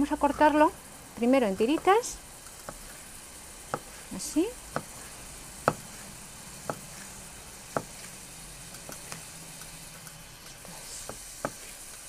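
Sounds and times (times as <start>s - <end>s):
onion frying in oil: 0.0s - 12.0s
knife knocking on wooden board: 5.7s - 5.9s.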